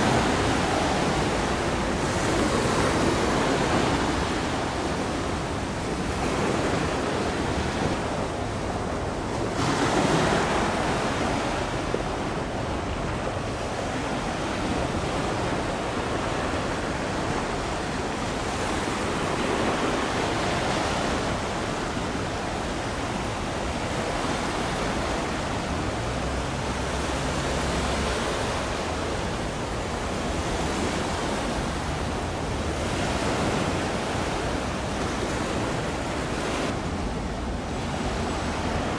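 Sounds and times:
sea water rushing: 0.0s - 38.9s
wind on microphone: 0.0s - 38.9s.

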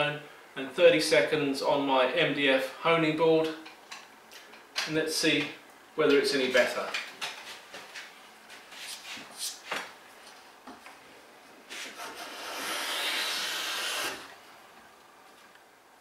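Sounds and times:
hand plane hissing along wood: 11.7s - 14.3s.

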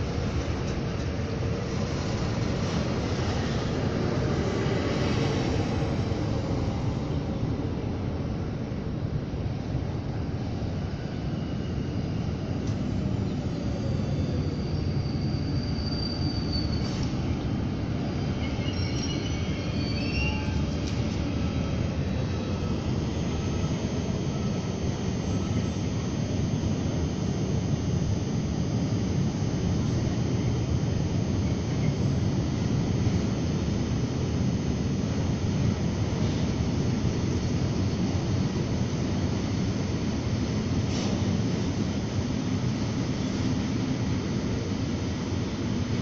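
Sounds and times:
freight train rolling past: 0.0s - 25.8s
electric train running by: 0.0s - 46.0s
high wheel squeals: 13.6s - 17.2s, 18.2s - 20.8s.

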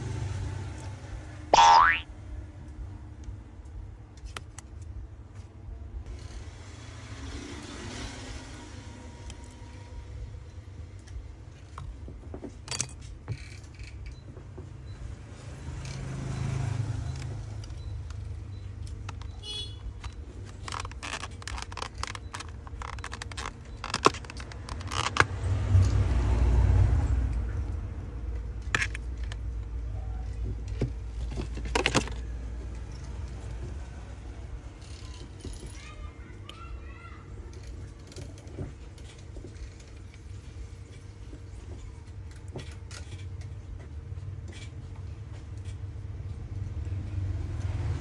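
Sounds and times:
light metallic clicks and scrapes: 11.0s - 14.4s, 37.5s - 46.6s.

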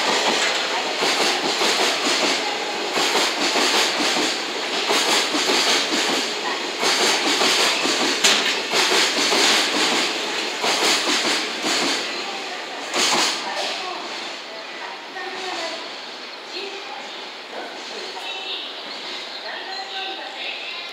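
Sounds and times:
train wheels clattering on rail: 0.0s - 12.2s, 12.8s - 14.1s.

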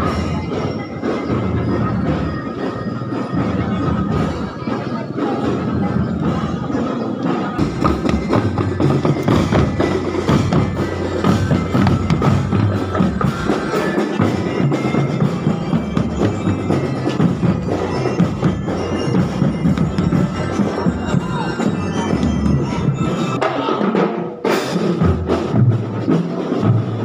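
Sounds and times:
parade drums and percussion: 0.0s - 27.0s
high ringing notes: 7.6s - 23.5s.

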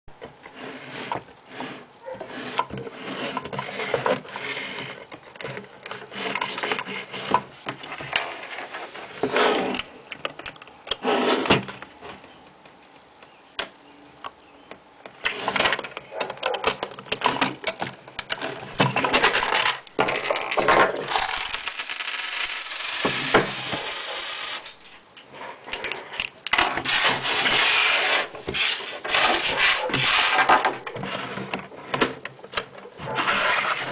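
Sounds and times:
plastic bricks clicking and knocking: 15.1s - 24.8s.

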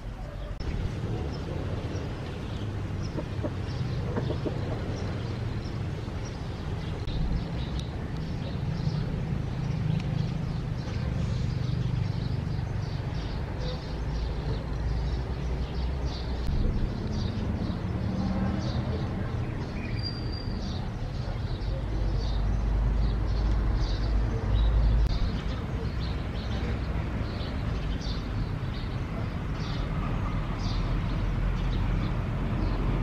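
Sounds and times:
chickens clucking: 3.0s - 5.2s.

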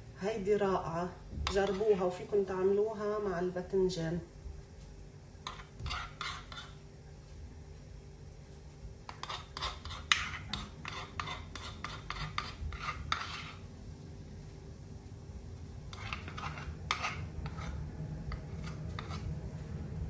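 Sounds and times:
metal spoon scraping wooden bowl: 1.5s - 2.0s, 5.4s - 6.8s, 9.1s - 13.6s, 15.9s - 19.3s.

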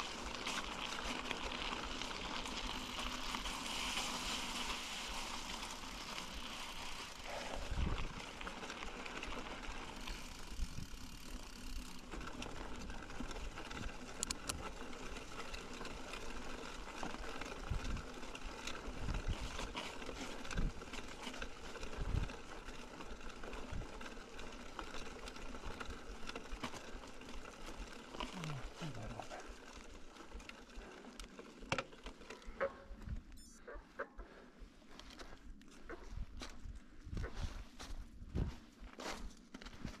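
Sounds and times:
rushing tyres and air: 0.0s - 11.9s
bike rattling clicks: 8.4s - 28.4s.

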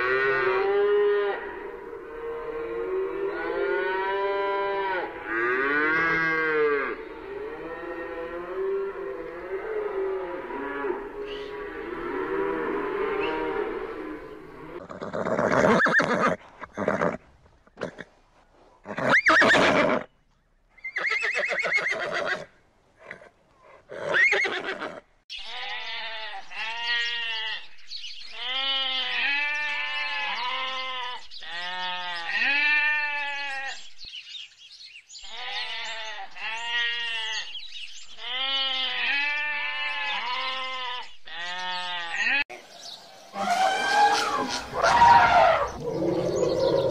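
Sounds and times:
sheep bleating: 2.4s - 14.8s, 25.4s - 27.7s, 28.3s - 33.8s, 35.3s - 37.5s, 38.2s - 42.6s
horse neighing: 10.8s - 17.2s, 43.3s - 46.9s.

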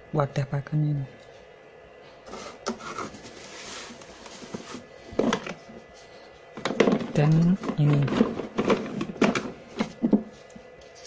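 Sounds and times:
plastic pieces clattering: 6.6s - 9.6s
plastic pieces rustling and scraping: 6.6s - 11.0s.

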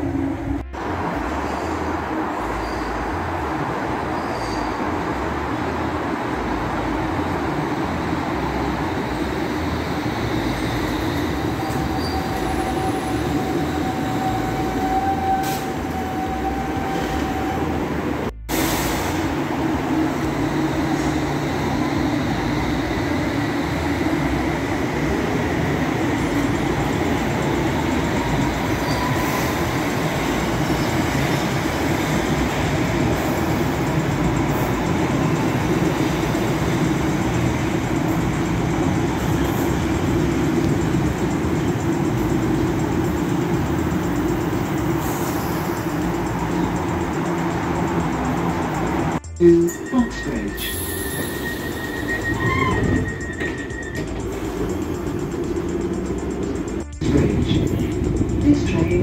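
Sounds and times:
train rumbling on rails: 0.0s - 59.0s
wheel squeal: 4.2s - 4.8s, 9.1s - 17.6s, 27.8s - 31.6s, 45.0s - 46.9s, 49.9s - 55.6s.

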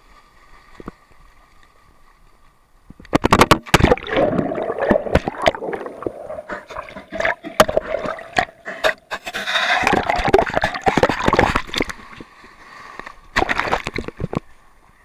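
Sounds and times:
seawater splashing: 3.6s - 14.7s.

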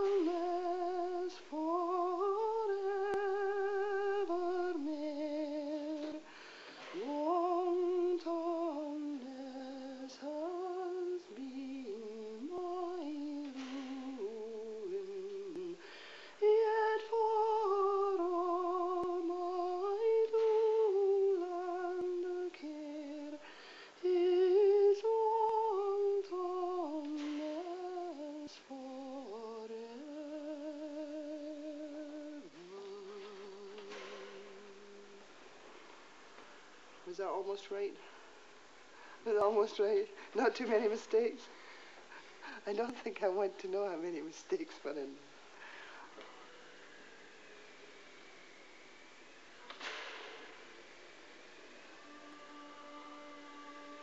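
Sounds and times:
woman singing unaccompanied: 0.0s - 35.7s, 39.2s - 41.6s, 51.8s - 54.0s.

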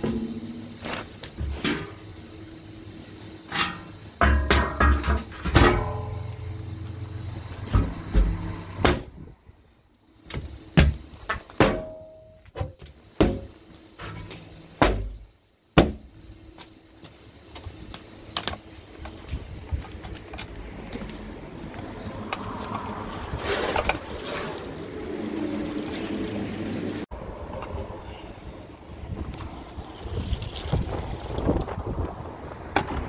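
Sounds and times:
thuds and metallic clanks: 0.0s - 2.0s, 3.5s - 6.3s, 7.5s - 9.3s, 10.3s - 16.1s.

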